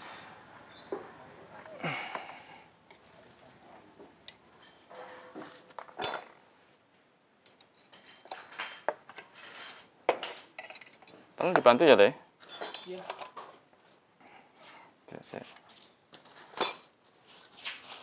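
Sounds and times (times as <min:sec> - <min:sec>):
metal tools clinking: 0:04.6 - 0:06.4, 0:07.5 - 0:11.8, 0:12.4 - 0:13.4, 0:16.5 - 0:17.0.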